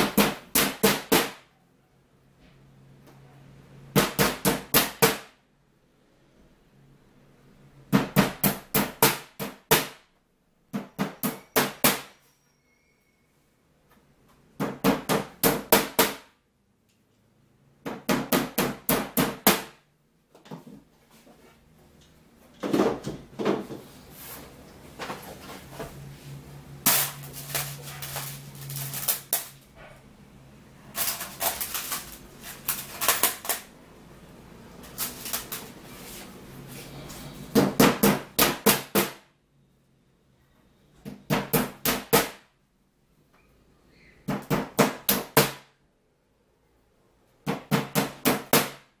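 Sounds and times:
hammer striking wood: 0.0 - 1.4, 14.6 - 16.3, 17.8 - 19.8, 37.5 - 39.2, 47.4 - 48.8.

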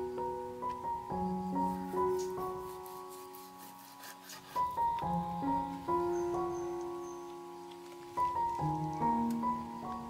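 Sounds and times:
slow sustained keyboard notes: 0.0 - 10.0.

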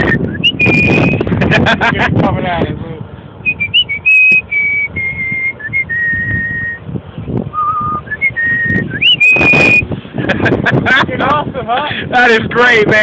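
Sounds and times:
person whistling a tune: 0.0 - 1.2, 3.4 - 6.8, 7.5 - 9.8.

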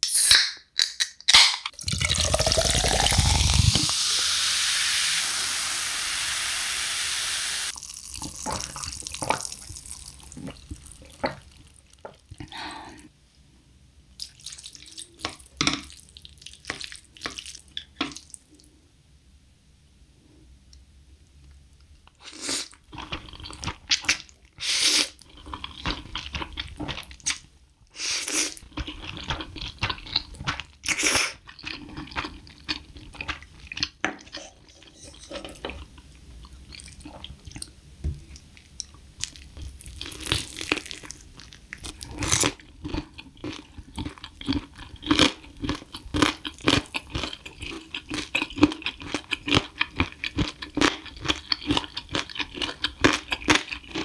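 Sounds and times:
person slurping noodles: 1.8 - 4.3.

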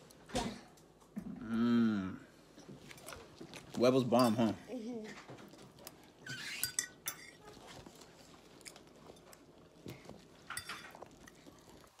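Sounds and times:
quiet chewing: 2.4 - 4.1, 4.8 - 6.4, 7.0 - 12.0
metal fork scraping a plate: 6.2 - 7.4.

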